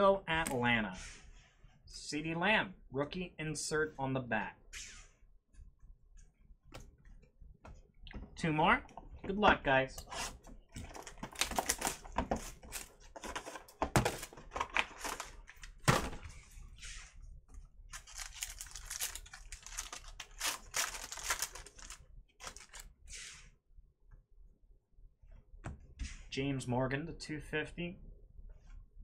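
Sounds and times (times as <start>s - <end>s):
foil pack crinkling and tearing: 10.9s - 13.0s, 17.9s - 22.8s.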